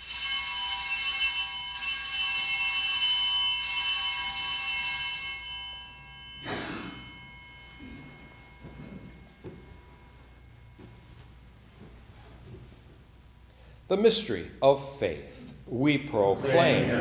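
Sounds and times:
altar bells jingling: 0:00.0 - 0:11.2
soft rustling: 0:07.8 - 0:13.2.

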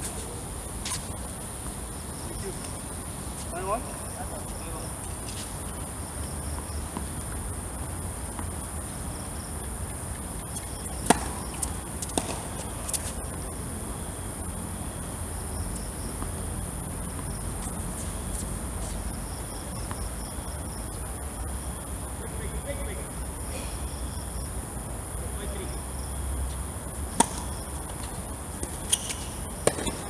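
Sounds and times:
tennis ball bouncing on court: 0:10.6 - 0:13.1, 0:27.1 - 0:30.0
tennis ball struck by racket: 0:11.0 - 0:12.5, 0:27.1 - 0:27.6, 0:28.6 - 0:30.0.

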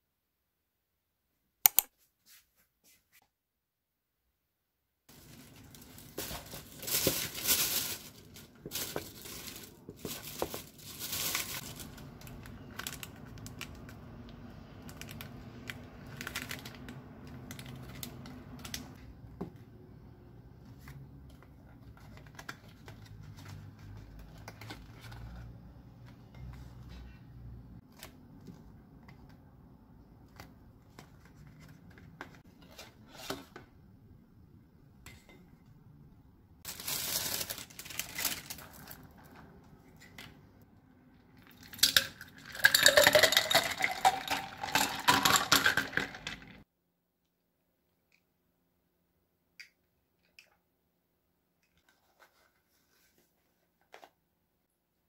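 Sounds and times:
paper packaging rustling: 0:05.1 - 0:14.0, 0:20.9 - 0:25.6, 0:36.6 - 0:40.4.

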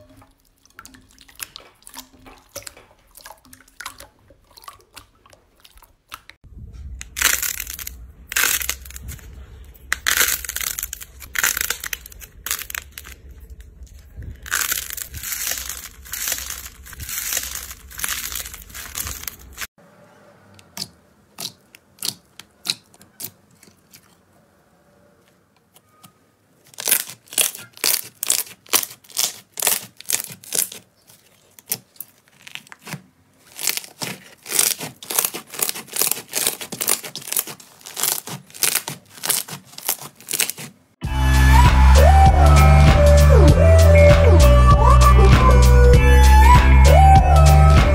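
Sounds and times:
slime crackling and popping: 0:07.0 - 0:19.7, 0:20.8 - 0:24.2, 0:26.6 - 0:40.8.

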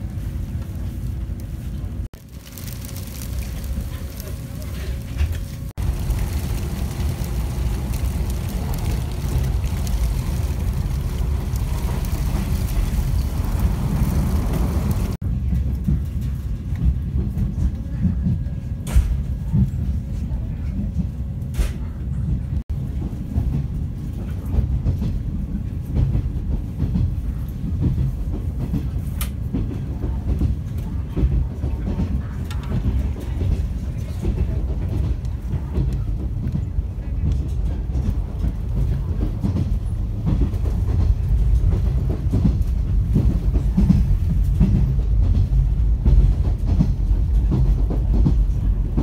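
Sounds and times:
train running gear rumble: 0:00.0 - 0:49.0
wheels clicking over rail joints: 0:02.2 - 0:15.2.

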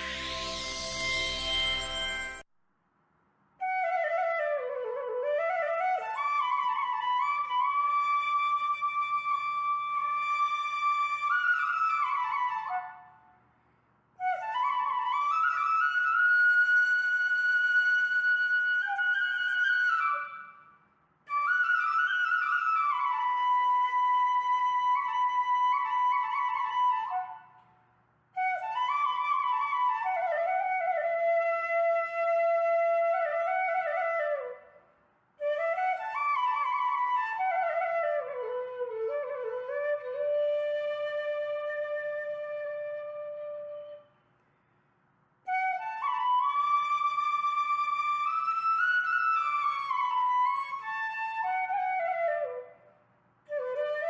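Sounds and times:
solo flute playing: 0:00.0 - 0:02.5, 0:03.6 - 0:13.4, 0:14.2 - 0:27.6, 0:28.4 - 0:34.8, 0:35.4 - 0:44.2, 0:45.5 - 0:54.0.

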